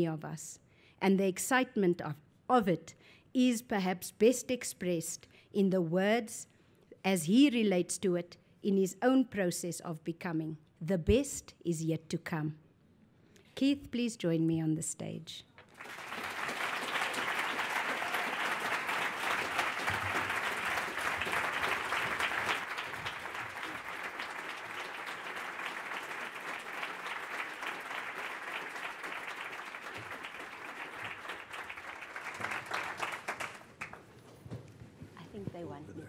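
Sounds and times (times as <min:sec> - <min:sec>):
audience applauding: 0:15.7 - 0:34.1.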